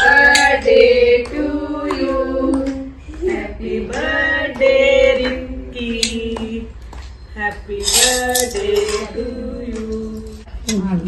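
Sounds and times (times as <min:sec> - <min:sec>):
group of voices singing: 0:00.0 - 0:10.5.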